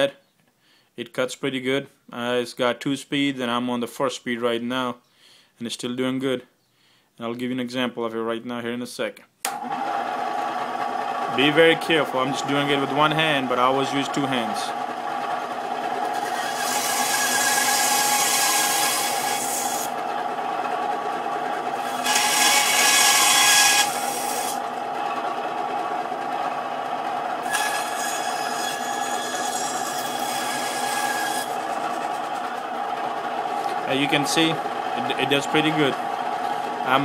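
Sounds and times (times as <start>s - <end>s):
bandsaw humming: 9.5s - 37.0s
saw blade cutting through meat: 16.1s - 19.9s, 21.8s - 24.6s, 27.4s - 31.7s.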